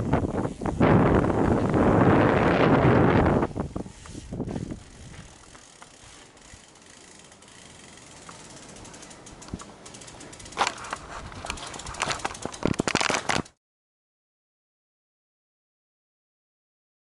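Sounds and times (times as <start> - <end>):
bike rattling on rough trail: 0.0 - 13.6
freewheel hub ticking: 4.0 - 13.4.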